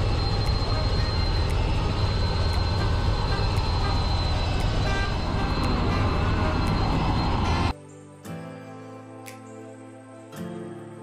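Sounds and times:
helicopter rotor and engine rumble: 0.0 - 7.7
thin high whine: 0.0 - 7.8.

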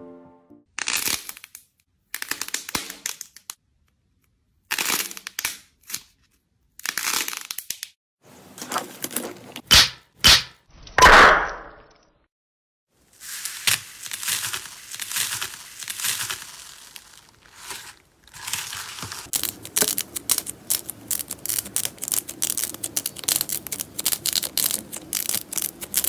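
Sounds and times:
slime crackling and crunching: 13.0 - 26.0.

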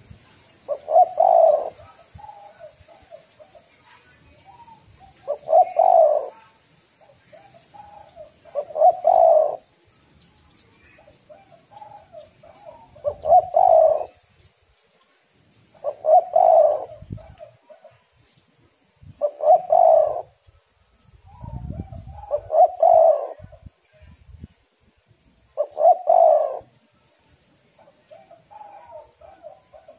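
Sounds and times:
dove cooing: 0.7 - 3.8, 4.4 - 9.7, 11.0 - 14.2, 15.7 - 18.0, 19.2 - 20.4, 21.3 - 23.7, 25.6 - 26.8, 27.8 - 29.9.

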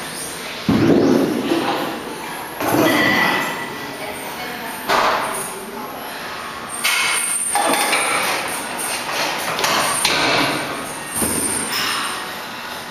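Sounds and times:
metallic clanks of gym machine: 6.8 - 12.3.

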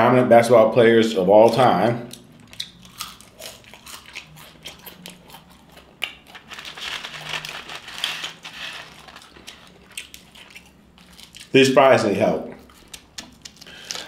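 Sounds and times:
chewing fries with crunching: 1.4 - 11.7, 12.5 - 14.0
crinkling: 2.4 - 11.6, 12.6 - 14.0.

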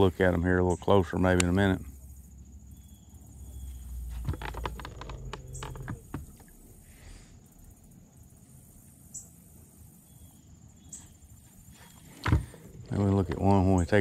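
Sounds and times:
faint insect chirping: 0.0 - 14.0
fishing tackle clicking and knocking: 4.2 - 6.5.

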